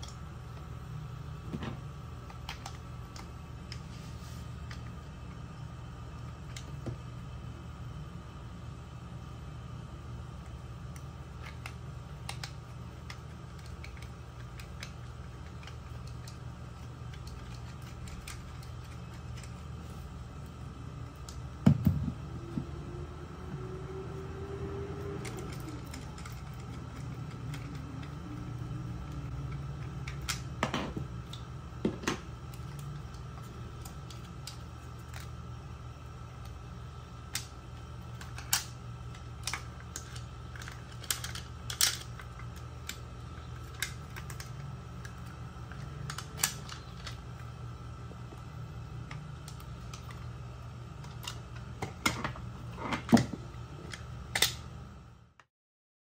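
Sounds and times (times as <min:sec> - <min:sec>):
steady low hum: 0:00.0 - 0:55.5
plastic housing clicks and snaps: 0:43.6 - 0:47.2, 0:53.9 - 0:54.7.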